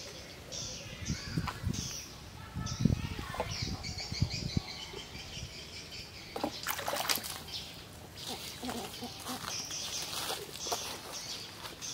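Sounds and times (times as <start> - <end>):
birds chirping: 0.0 - 11.9
water splashing and dribbling: 6.3 - 7.6.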